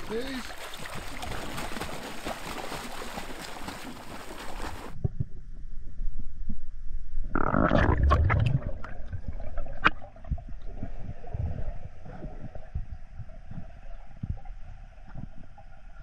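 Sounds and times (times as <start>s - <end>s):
water splashing: 0.0s - 5.0s, 7.4s - 10.8s
muffled underwater rumbling and knocks: 7.4s - 16.0s.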